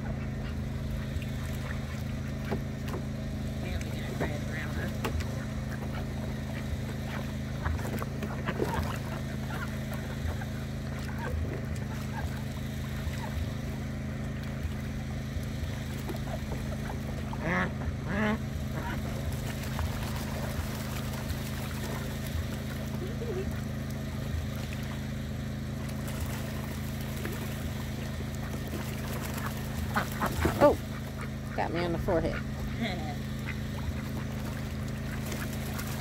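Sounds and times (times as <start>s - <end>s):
ducks splashing in water: 0.0s - 36.0s
small engine droning: 0.0s - 36.0s
duck quacks: 4.2s - 13.4s, 16.8s - 19.2s, 29.2s - 36.0s.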